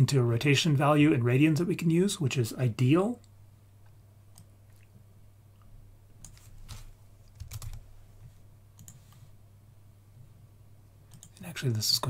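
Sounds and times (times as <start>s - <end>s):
low steady hum: 0.0s - 12.0s
computer keyboard typing: 6.2s - 7.8s, 11.1s - 11.4s.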